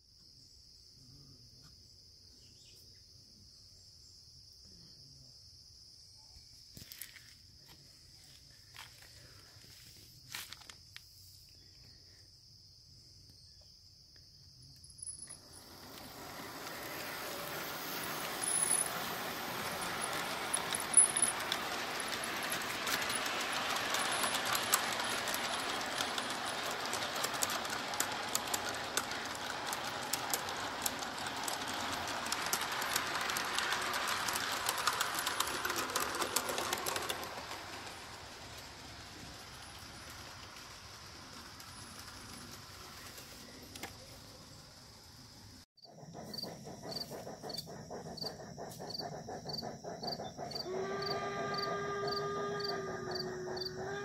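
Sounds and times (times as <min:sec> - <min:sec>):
model train wheels rattling: 0:15.0 - 0:54.0.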